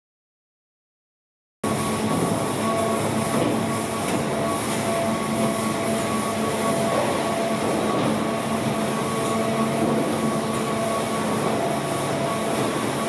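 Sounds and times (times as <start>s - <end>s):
baling press machine hum: 1.6s - 13.0s.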